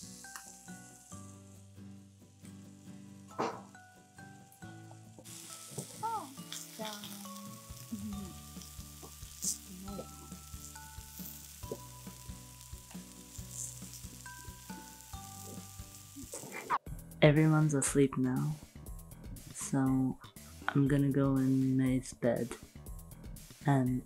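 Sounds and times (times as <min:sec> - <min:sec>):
food sizzling on a grill: 0:00.0 - 0:16.8
soft background music: 0:00.0 - 0:24.0.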